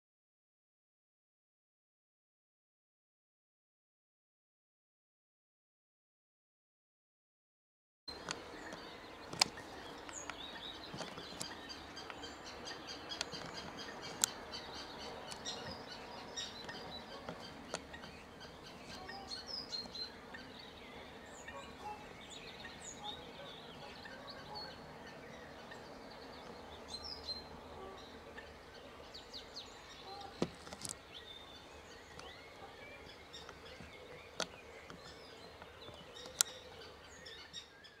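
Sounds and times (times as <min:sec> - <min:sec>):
outdoor background noise: 0:08.1 - 0:38.0
small birds chirping: 0:08.1 - 0:38.0
sharp clicks: 0:08.2 - 0:12.2.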